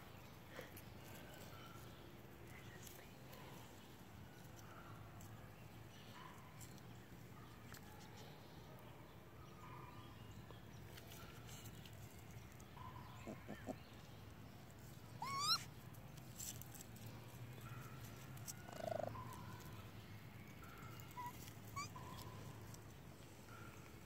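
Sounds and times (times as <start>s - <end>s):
baby raccoons chirping: 12.4s - 15.8s, 18.1s - 24.0s.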